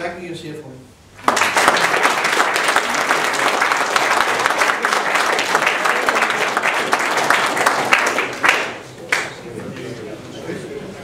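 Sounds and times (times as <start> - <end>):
audience applauding: 1.2 - 9.5.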